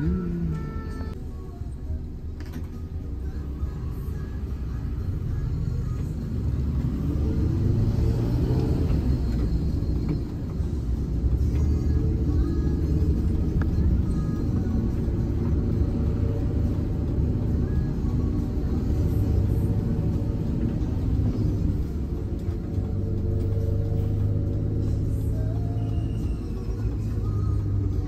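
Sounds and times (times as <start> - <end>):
background music: 0.0 - 28.0
bus engine rumbling: 0.0 - 28.0.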